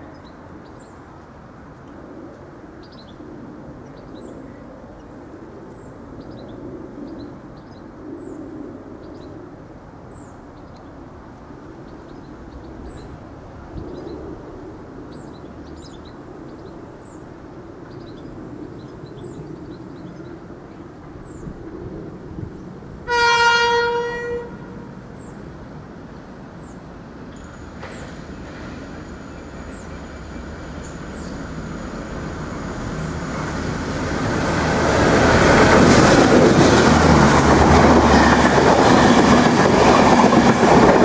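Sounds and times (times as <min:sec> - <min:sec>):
distant locomotive rumble: 0:00.0 - 0:41.0
birds chirping: 0:25.1 - 0:36.8.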